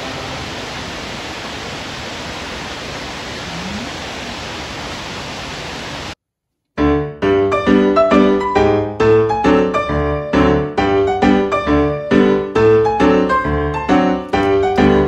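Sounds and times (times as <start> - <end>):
waterfall rushing onto rocks: 0.0 - 6.2
piano music: 6.8 - 15.0.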